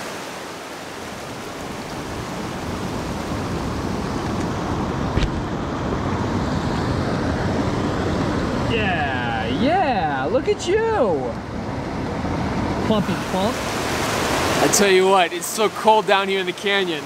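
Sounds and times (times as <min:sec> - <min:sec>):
creek rushing over boulders: 0:12.1 - 0:17.0.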